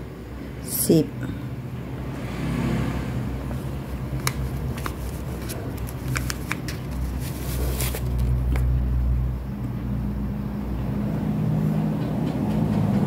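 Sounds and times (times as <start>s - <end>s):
thread and label rustling: 3.5s - 8.7s.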